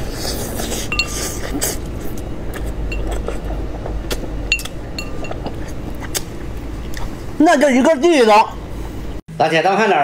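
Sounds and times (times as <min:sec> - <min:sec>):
steady low hum: 0:00.0 - 0:09.3
sucking and chewing: 0:00.1 - 0:07.2
bones clinking on porcelain plate: 0:04.5 - 0:05.6.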